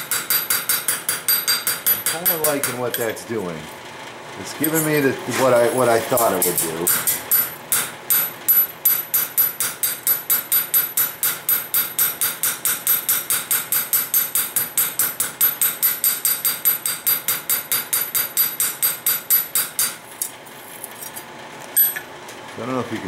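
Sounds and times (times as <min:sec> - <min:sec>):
hammer tapping sheet steel: 0:00.0 - 0:03.1, 0:06.1 - 0:20.0.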